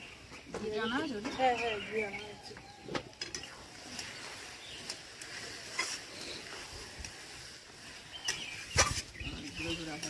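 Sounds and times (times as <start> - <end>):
faint sizzle: 0.0 - 10.0
metal spatula scraping in a pan: 3.2 - 10.0.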